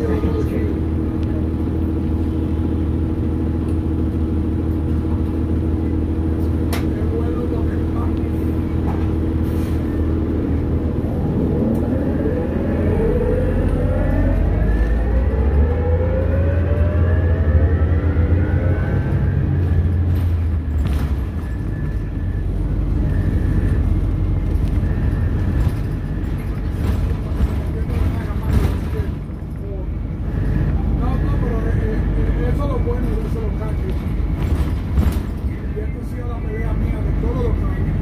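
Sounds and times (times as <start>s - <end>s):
bus whine rising in pitch: 0.0s - 28.4s
low rumble: 0.0s - 38.0s.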